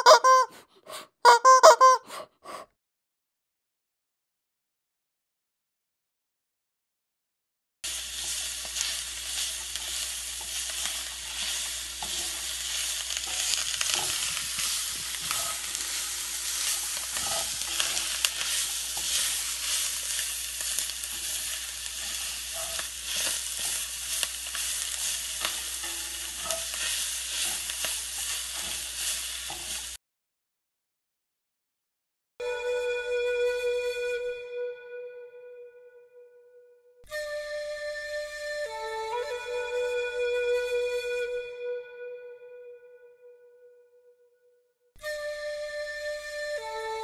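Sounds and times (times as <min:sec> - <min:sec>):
food sizzling in a frying pan: 0:07.8 - 0:30.0.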